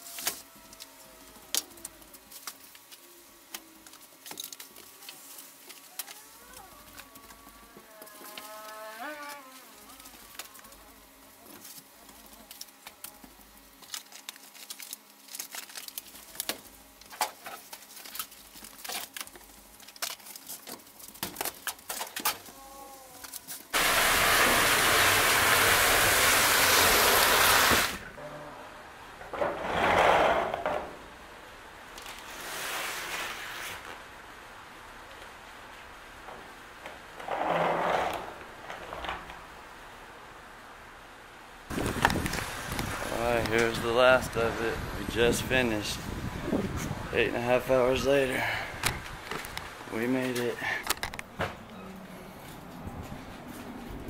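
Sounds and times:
loud even rush of noise: 0:23.8 - 0:28.1.

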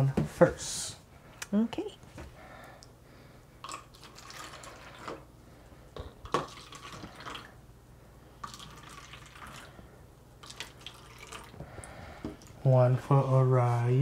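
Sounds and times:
juice pouring into cups: 0:03.6 - 0:05.3, 0:06.2 - 0:07.6, 0:08.4 - 0:09.8, 0:10.4 - 0:12.6.

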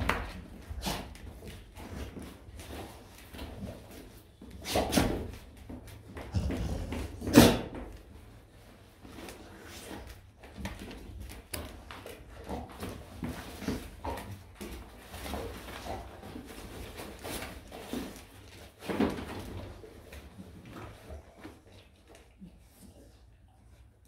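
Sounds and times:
dogs sniffing: 0:00.5 - 0:05.5, 0:06.1 - 0:07.8.

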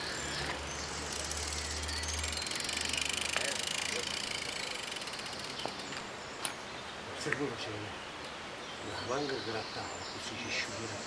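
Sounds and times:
bicycle freewheel ticking: 0:00.1 - 0:05.9.

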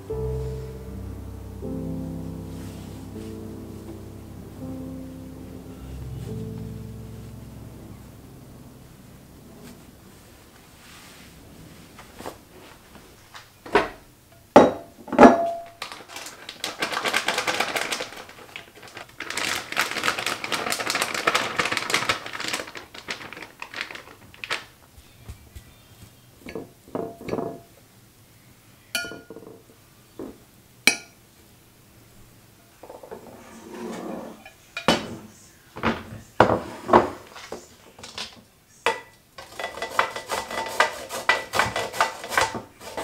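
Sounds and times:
spoon clinking against glass bowl: 0:29.0 - 0:29.4
grated coconut pouring: 0:39.4 - 0:43.0.

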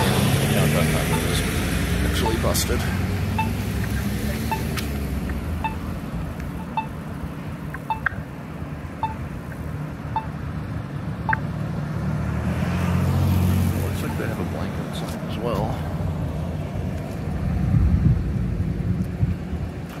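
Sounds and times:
pedestrian signal locator beeps: 0:00.0 - 0:08.4, 0:09.0 - 0:10.4, 0:11.2 - 0:11.5, 0:13.9 - 0:14.4
car passing: 0:00.0 - 0:17.7
traffic rumble: 0:00.0 - 0:20.0.

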